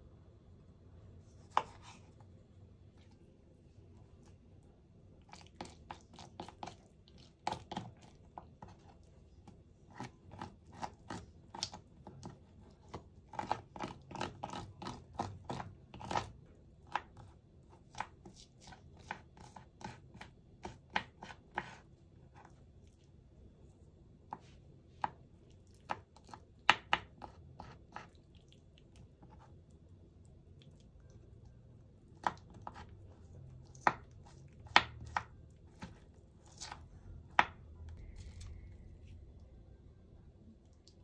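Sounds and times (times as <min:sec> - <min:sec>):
knife chopping on cutting board: 0:01.5 - 0:01.9, 0:09.9 - 0:16.3, 0:17.9 - 0:21.8, 0:32.2 - 0:32.9, 0:33.8 - 0:37.6.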